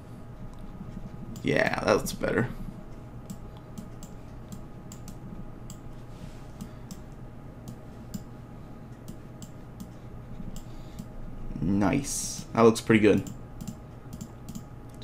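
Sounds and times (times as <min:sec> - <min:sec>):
faint electrical hum: 0:00.0 - 0:15.0
mouse and keyboard clicking: 0:13.2 - 0:14.7.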